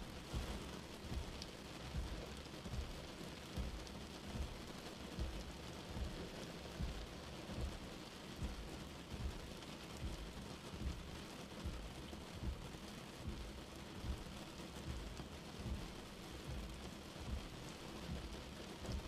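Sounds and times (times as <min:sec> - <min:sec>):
rain on a windscreen: 0:00.0 - 0:19.0.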